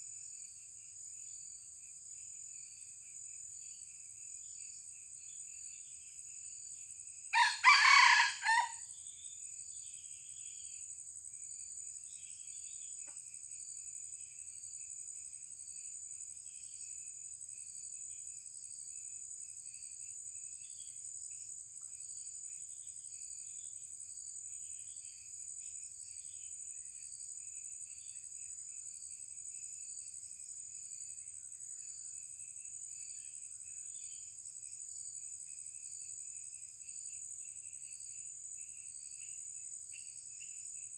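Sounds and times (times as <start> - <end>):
high insect drone: 0.0 - 40.9
rooster crowing: 7.3 - 8.8.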